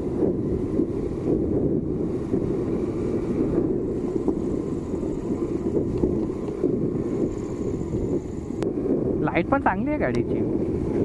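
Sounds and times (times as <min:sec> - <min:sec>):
scooter engine: 0:00.0 - 0:09.2
wind buffeting microphone: 0:00.0 - 0:11.0.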